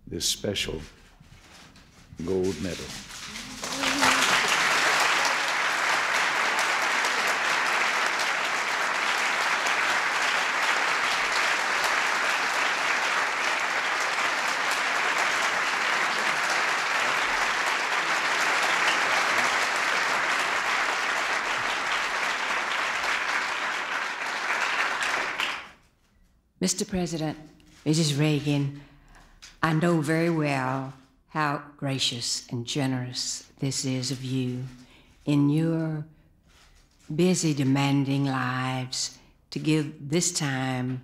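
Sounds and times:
audience applauding: 0:03.2 - 0:25.8.

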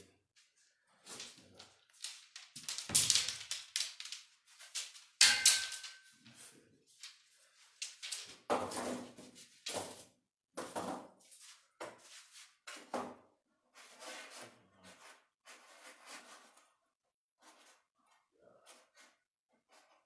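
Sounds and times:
wooden sticks knocking and scraping: 0:01.0 - 0:10.0.

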